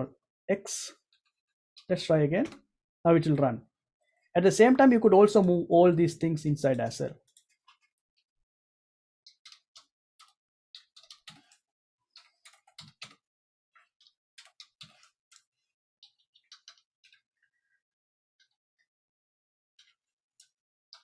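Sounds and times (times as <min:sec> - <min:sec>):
computer keyboard typing: 0:09.3 - 0:13.2, 0:14.0 - 0:17.2.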